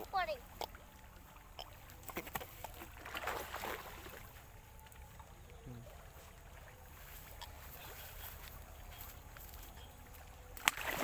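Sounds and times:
grass rustling: 0:06.2 - 0:11.0
fish slapping: 0:10.6 - 0:11.0.

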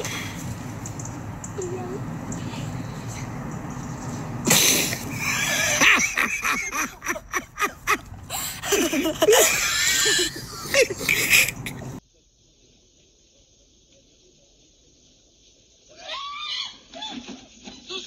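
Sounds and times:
girl laughing hard: 0:04.5 - 0:12.0.

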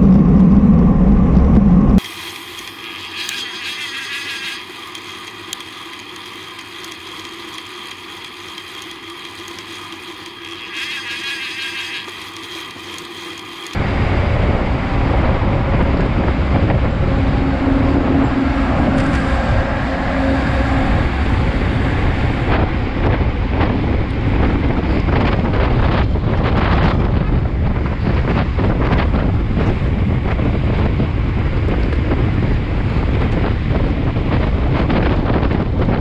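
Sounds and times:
low engine hum: 0:00.0 - 0:02.0, 0:13.8 - 0:36.0
wind on microphone: 0:00.0 - 0:02.0, 0:13.8 - 0:36.0
road and traffic noise: 0:13.5 - 0:35.9
truck passing close: 0:13.8 - 0:25.2.

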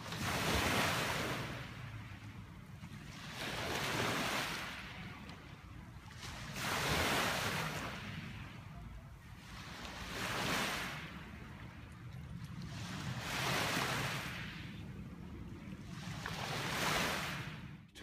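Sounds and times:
waves washing up gravel shore: 0:00.0 - 0:02.1, 0:02.9 - 0:08.8, 0:09.4 - 0:11.7, 0:12.6 - 0:14.8, 0:15.9 - 0:17.7.

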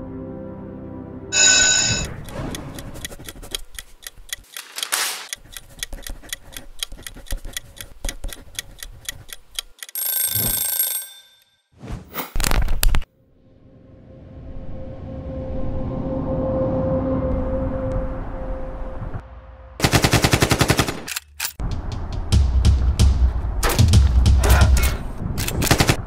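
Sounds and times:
short bright ring: 0:01.4 - 0:02.1
bell-like alarm ring: 0:01.4 - 0:02.2, 0:10.0 - 0:11.7
clock ticking: 0:02.0 - 0:10.2.

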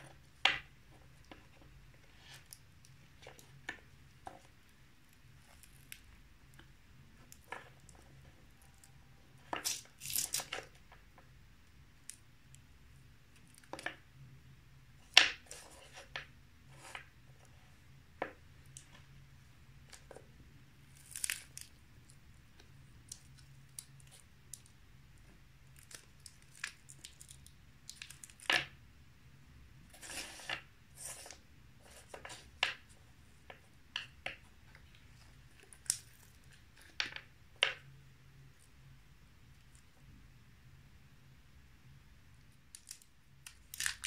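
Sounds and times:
knife cutting chewy candies: 0:07.4 - 0:10.8, 0:20.9 - 0:22.1.

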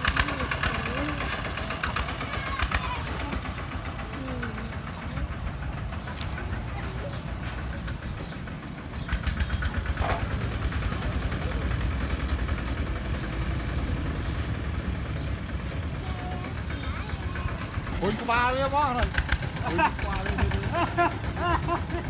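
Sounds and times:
diesel engine chugging: 0:00.0 - 0:22.0.

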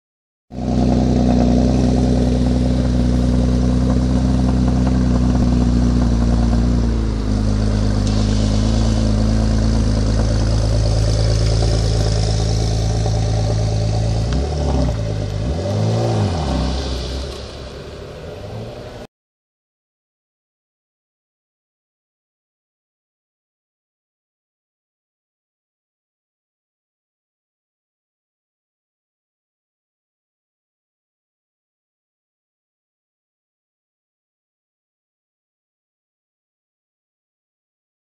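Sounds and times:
car engine idling: 0:00.6 - 0:19.1
engine throttle blips: 0:00.6 - 0:19.1.

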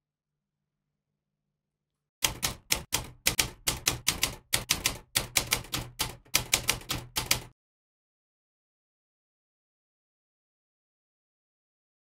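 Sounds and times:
typewriter keys clacking: 0:02.2 - 0:07.5.

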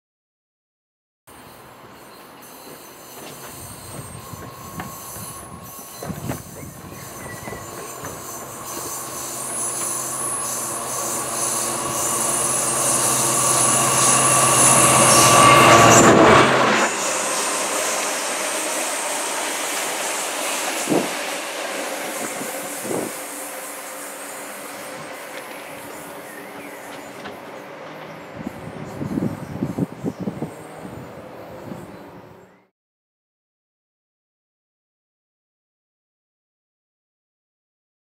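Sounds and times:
thin high ringing: 0:01.4 - 0:26.9
wagons rolling on rails: 0:01.8 - 0:29.3
diesel locomotive engine thrashing: 0:02.6 - 0:29.8.

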